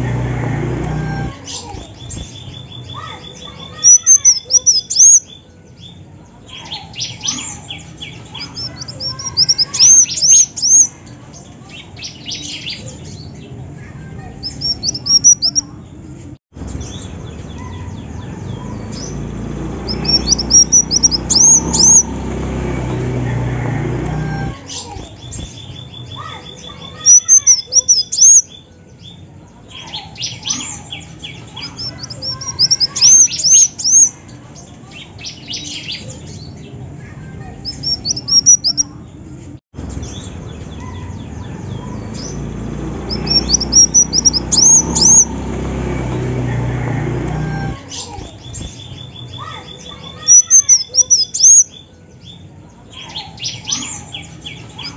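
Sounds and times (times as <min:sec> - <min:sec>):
bird chirping: 0:01.0 - 0:13.6, 0:14.4 - 0:15.9, 0:16.6 - 0:29.2, 0:29.8 - 0:34.4, 0:37.6 - 0:39.0, 0:39.8 - 0:46.1, 0:47.6 - 0:54.9
fast ticking bird call: 0:19.9 - 0:22.2, 0:27.0 - 0:28.4, 0:43.0 - 0:45.3.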